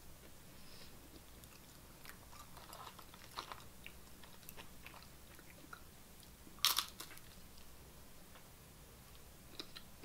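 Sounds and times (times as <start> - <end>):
crisp chip crunch: 1.4 - 5.8, 6.6 - 7.4
chips clicking in plastic tray: 6.6 - 7.1.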